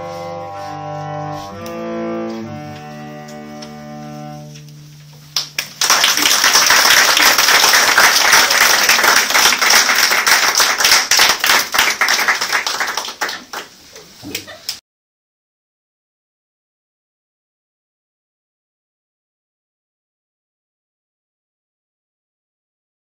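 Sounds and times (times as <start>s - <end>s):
cellos playing low note: 0.0s - 5.6s
audience applause: 5.4s - 13.8s.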